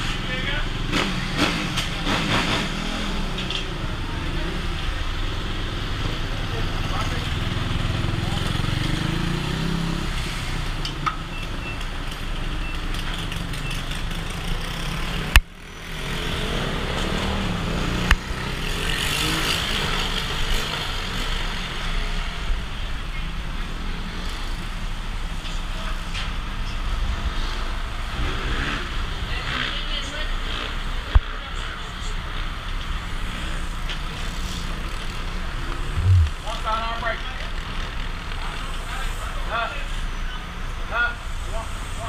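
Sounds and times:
motorcycle engine running: 35.8 - 36.6.

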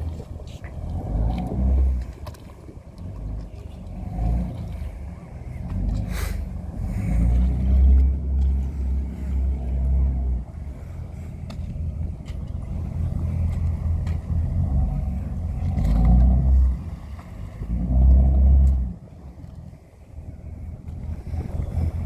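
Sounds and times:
boat engines rumbling: 0.0 - 22.0.

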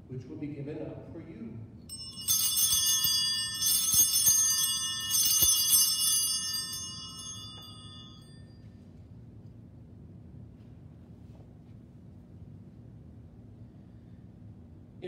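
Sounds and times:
altar bells ringing: 1.9 - 8.6.

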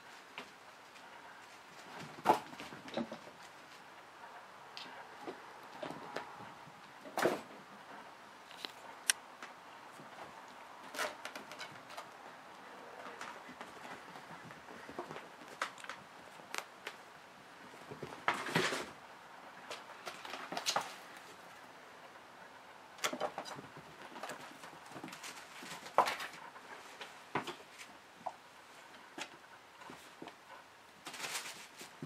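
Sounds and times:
kittens thumping and scuffling: 0.4 - 3.9, 4.8 - 8.1, 13.0 - 17.0, 17.6 - 19.0, 19.6 - 21.6, 23.0 - 28.4, 29.0 - 32.0.

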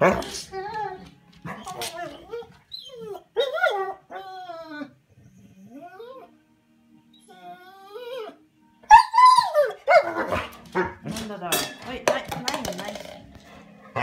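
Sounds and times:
dog yowling: 0.0 - 5.0, 7.2 - 10.5
dog whining: 0.0 - 6.4, 7.1 - 10.5
dog barking: 9.9 - 11.0.

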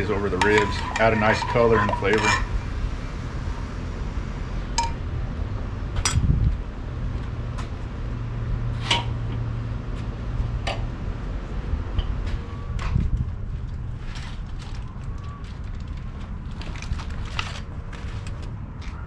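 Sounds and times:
metal tongs clinking on grill: 0.3 - 2.5.

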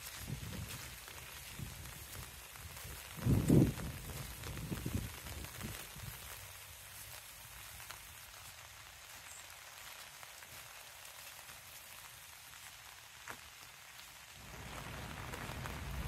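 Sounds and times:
light rain falling: 0.0 - 16.0
raindrop taps: 13.2 - 16.0.

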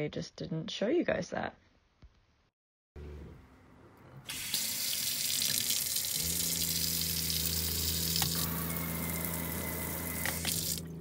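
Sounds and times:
water pump humming: 4.3 - 11.0
water running into metal sink: 4.3 - 11.0.

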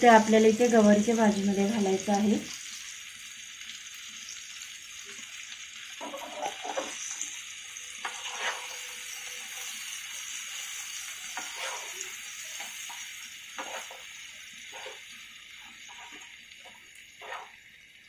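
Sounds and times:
beans sizzling in oil: 0.0 - 18.0
spatula scraping and knocking pan: 6.0 - 7.2, 8.0 - 9.8, 11.2 - 17.6.

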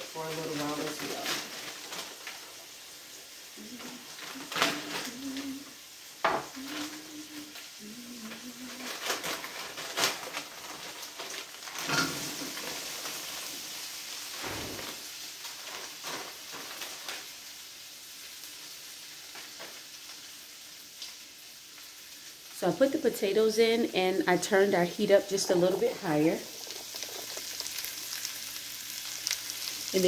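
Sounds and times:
food sizzling in a frying pan: 0.0 - 30.0
potatoes clattering into pan: 8.9 - 13.7, 25.3 - 30.0.

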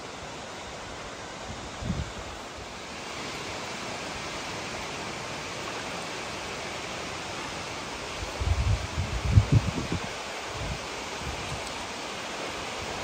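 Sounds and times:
river rushing over stones: 0.0 - 13.0
wind buffeting microphone: 1.4 - 2.3, 8.2 - 11.7.

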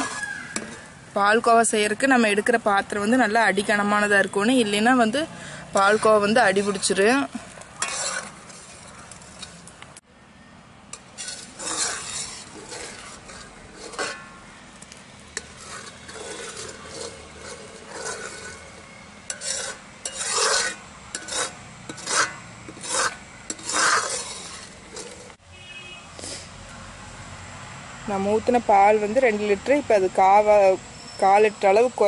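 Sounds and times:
metal ladle scraping pan: 0.0 - 1.0, 4.0 - 9.7, 10.9 - 14.4, 15.3 - 25.4.

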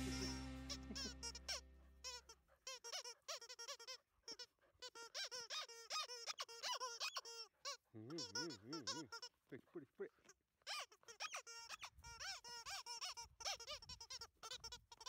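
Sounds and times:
squeaky dog toy squeaking: 0.0 - 9.4, 10.6 - 15.0.

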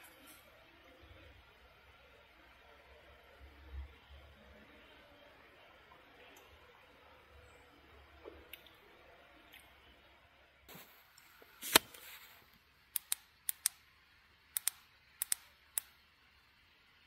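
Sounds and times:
flashlight switch clicks: 12.9 - 13.8, 14.6 - 15.9.

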